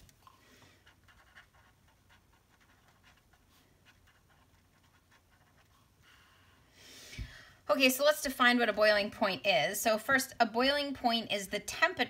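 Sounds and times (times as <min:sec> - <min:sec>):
pen scratching on paper: 0:00.8 - 0:06.0.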